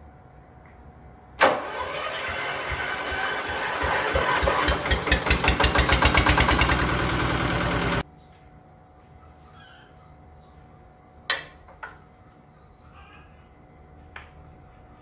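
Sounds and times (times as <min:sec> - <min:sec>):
engine running loudly: 0:01.6 - 0:08.0.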